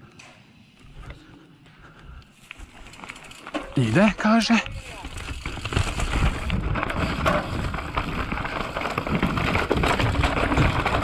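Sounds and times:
bike tyres rattling over dirt: 2.4s - 11.0s.

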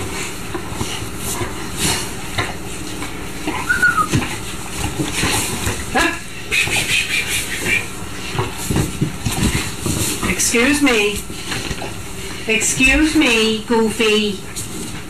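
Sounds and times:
puppies scuffling: 0.0s - 15.0s
puppy squeak: 3.5s - 4.1s.

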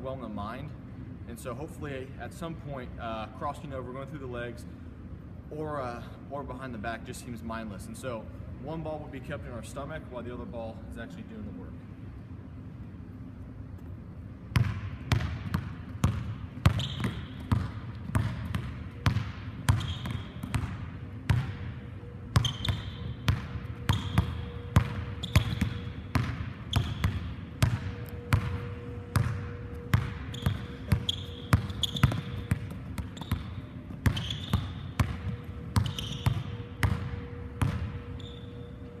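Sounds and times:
sneaker squeaks on floor: 16.6s - 17.5s, 19.7s - 20.6s, 22.3s - 26.0s, 26.6s - 27.2s, 29.4s - 39.0s
basketball bouncing on hardwood floor: 22.4s - 38.0s.

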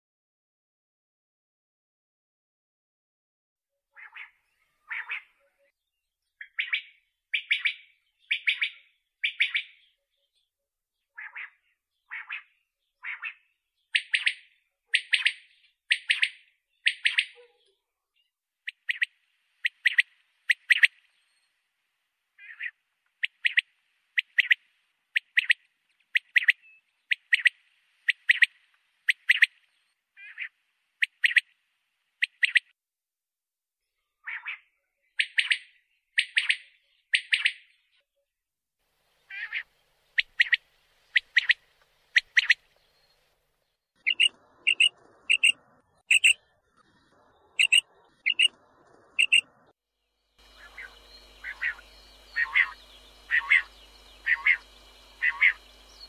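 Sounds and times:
quail calling: 4.0s - 5.4s, 18.7s - 21.0s, 22.4s - 24.6s, 30.2s - 31.4s, 39.3s - 42.6s, 44.0s - 46.4s, 47.5s - 49.5s, 50.4s - 55.6s.

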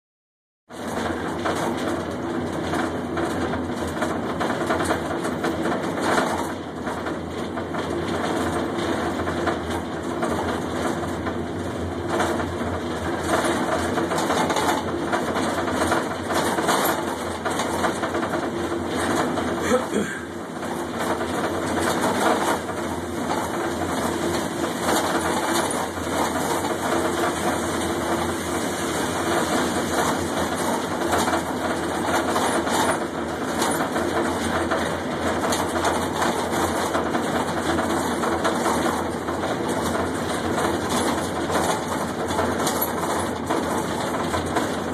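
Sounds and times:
overhead crane machinery hum: 11.0s - 40.8s.

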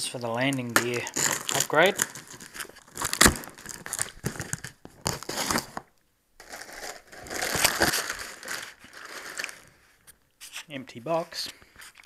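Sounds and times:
cardboard and plastic wrap rustling: 0.3s - 10.1s.

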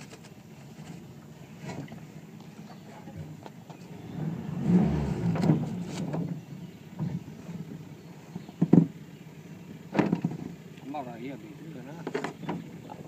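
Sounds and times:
hollow knocks on a boat: 8.4s - 9.0s, 9.9s - 10.6s, 12.0s - 13.0s.

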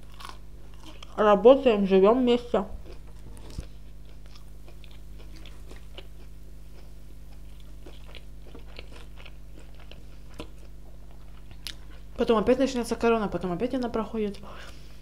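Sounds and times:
food crunching: 0.0s - 1.2s, 2.8s - 12.2s
soft chewing: 0.0s - 1.2s, 2.7s - 12.2s
steady low hum: 0.0s - 15.0s.

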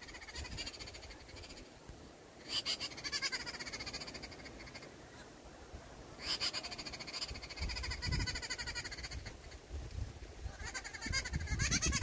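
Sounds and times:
small bird chattering calls: 0.0s - 1.8s, 2.4s - 5.3s, 6.2s - 9.7s, 10.5s - 12.0s.

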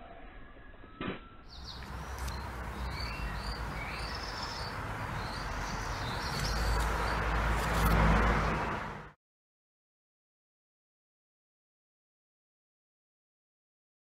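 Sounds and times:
car engine and tyre noise: 1.0s - 9.2s
street background noise: 1.0s - 9.2s
small birds chirping: 1.4s - 8.7s.

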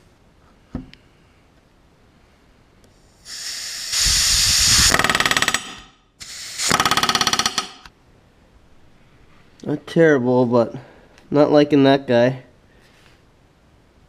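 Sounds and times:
air hiss: 3.0s - 7.5s
rivet gun hammering: 4.7s - 5.9s, 6.6s - 7.9s.

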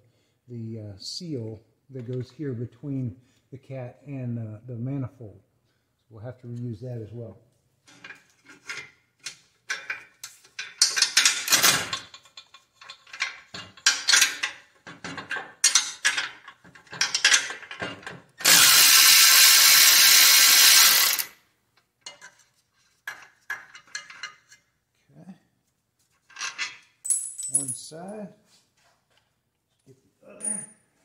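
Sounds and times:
electric ratchet driving bolt: 18.4s - 21.4s.

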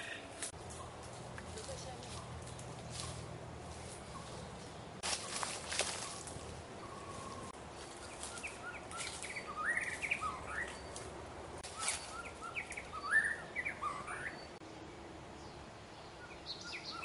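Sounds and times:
bird singing whistled notes: 8.1s - 11.0s, 11.7s - 14.6s, 16.1s - 17.0s.

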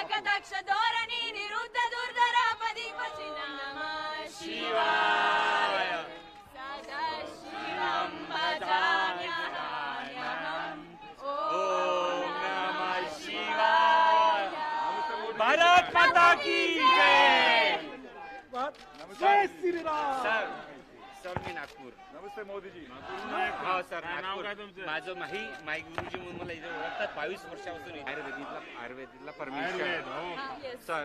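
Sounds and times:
crowd noise: 0.0s - 31.0s
group singing without instruments: 3.0s - 17.7s.

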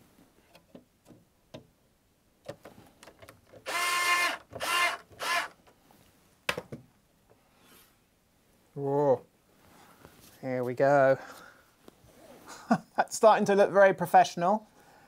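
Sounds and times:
electric screwdriver motor whirring: 3.6s - 5.6s.

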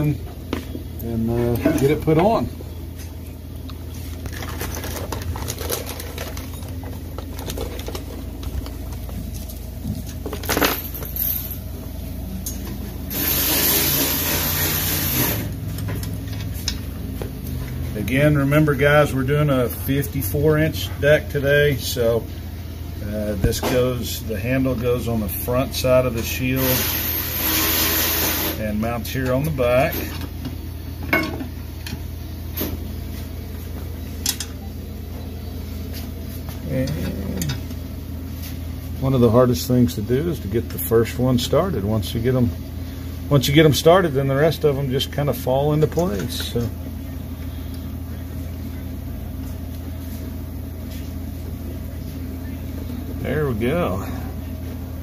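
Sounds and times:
steady low hum: 0.0s - 55.0s
loud steady hiss: 13.1s - 15.6s, 26.5s - 28.7s.

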